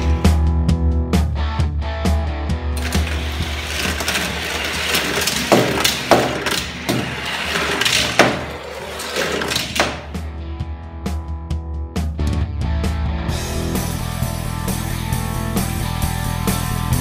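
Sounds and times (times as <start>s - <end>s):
toy car rolling down plastic ramps: 2.8s - 10.2s.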